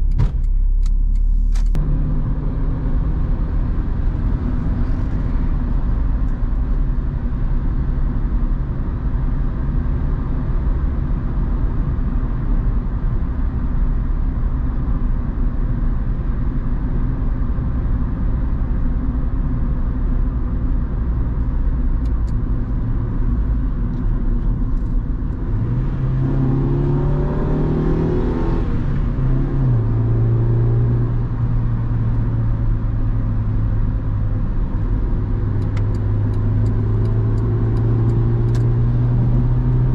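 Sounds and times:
car engine droning: 0.0s - 39.9s
road and tyre noise: 0.0s - 39.9s.

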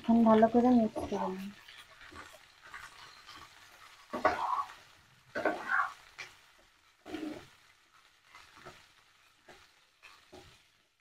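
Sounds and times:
faint frying sizzle: 0.0s - 11.0s
metal spatula scraping frying pan: 0.9s - 10.6s.

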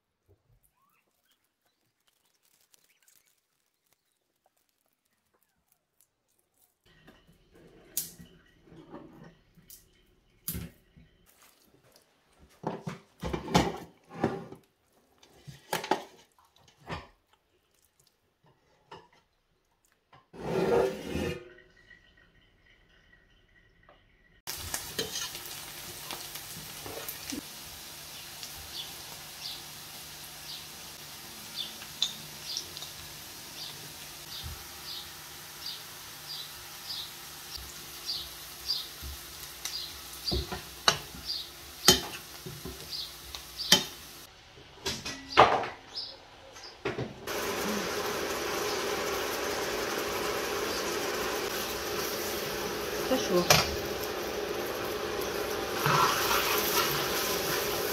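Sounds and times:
small crackles: 0.0s - 7.0s, 24.5s - 30.6s, 31.5s - 34.5s, 38.7s - 40.3s
onions sizzling in oil: 24.4s - 44.3s, 47.2s - 57.9s.

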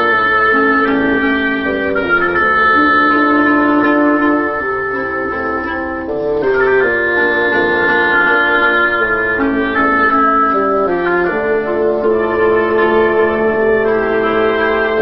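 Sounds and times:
wind ensemble playing: 0.0s - 15.0s.

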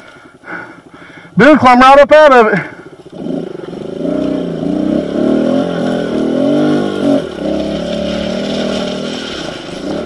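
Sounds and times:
dirt bike engine revving: 2.6s - 10.0s.

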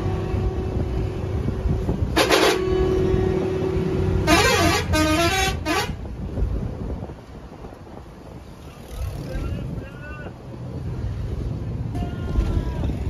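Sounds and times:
bus rumble: 0.0s - 13.0s
vehicle horn: 2.1s - 6.0s
warbling musical horn: 2.2s - 3.5s, 4.2s - 6.0s.

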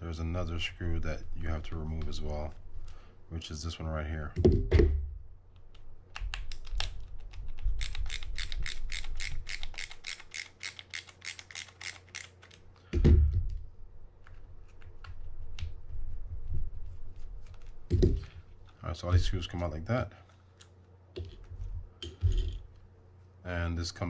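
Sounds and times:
screwdriver clicking: 7.8s - 12.6s.

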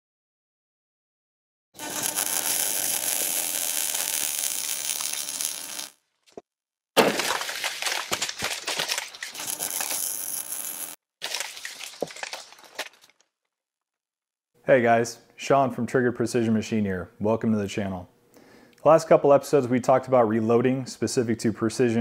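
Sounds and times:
crackles and clicks: 1.8s - 6.4s, 7.6s - 13.3s.

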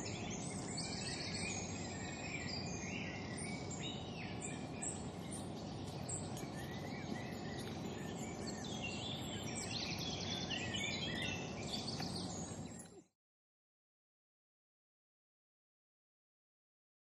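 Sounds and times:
low outdoor rumble: 0.0s - 13.0s
small birds singing: 0.0s - 13.1s.

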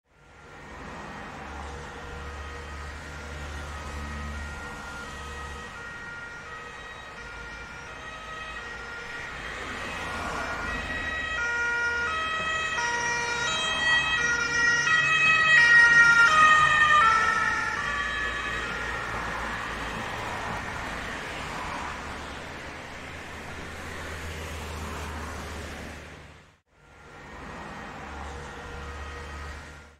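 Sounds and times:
ambulance siren two pitches: 3.6s - 20.1s.

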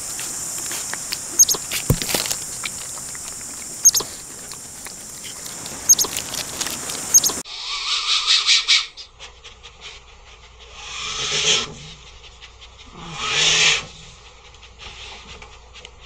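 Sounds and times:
anteater huffing: 0.0s - 7.4s
light ticking and rustling: 0.0s - 7.4s.

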